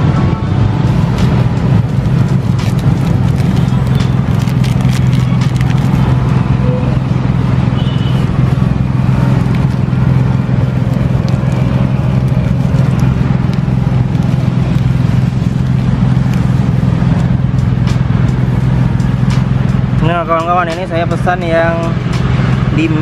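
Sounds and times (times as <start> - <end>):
low engine hum: 0.0 - 23.0
wrapper crinkles and clicks: 1.1 - 6.2, 9.1 - 18.4.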